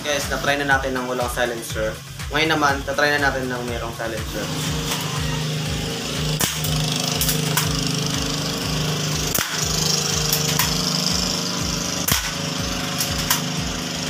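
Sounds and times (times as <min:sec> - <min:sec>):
steady low hum: 0:00.0 - 0:14.0
airsoft pistol shots: 0:06.4 - 0:07.8, 0:09.3 - 0:10.9, 0:12.0 - 0:13.5.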